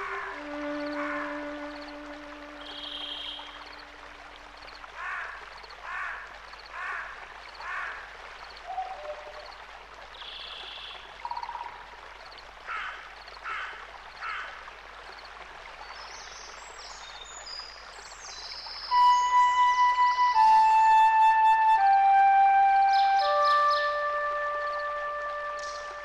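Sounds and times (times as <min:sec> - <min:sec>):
running water: 0:00.0 - 0:26.0.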